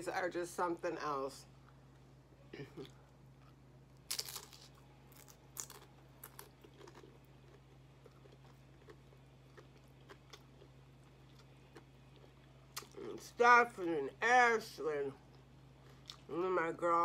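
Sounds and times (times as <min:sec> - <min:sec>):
crunching tortilla chips: 0:04.0 - 0:13.0.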